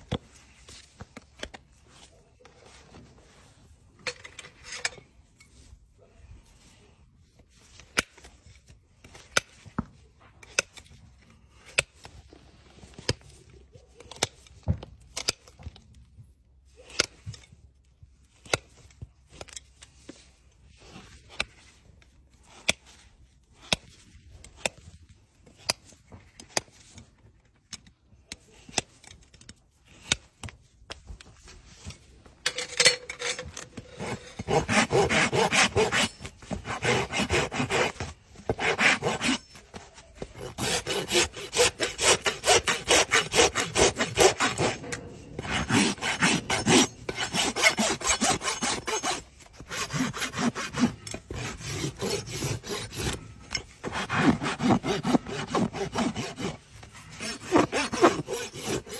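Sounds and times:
hoof rasp scraping: 31.4 - 58.9.

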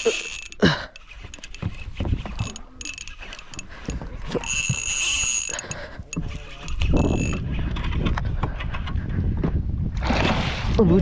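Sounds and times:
fishing reel spool whining: 0.0 - 7.6
reel clicks: 0.0 - 9.0
wind rumble on microphone: 5.8 - 11.0.

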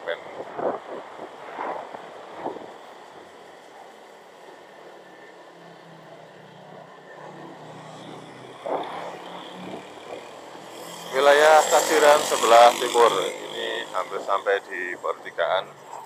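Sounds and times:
wind noise on microphone: 0.0 - 3.4.

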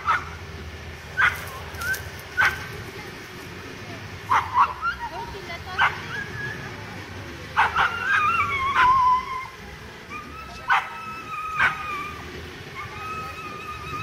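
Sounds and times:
dogs barking: 0.0 - 0.4, 1.1 - 1.6, 2.4 - 2.7, 4.3 - 5.1, 5.7 - 6.4, 7.5 - 9.2, 10.1 - 12.2
dogs whining: 7.6 - 14.0.

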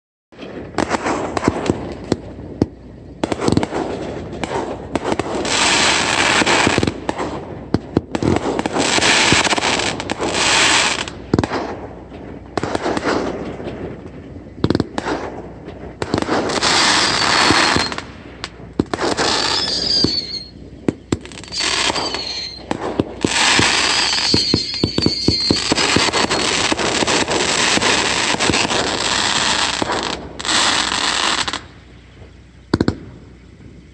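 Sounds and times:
fireworks bangs: 0.3 - 33.9
hissing crackle: 0.4 - 33.9
high warbling whistles: 16.5 - 18.2, 19.0 - 32.4.

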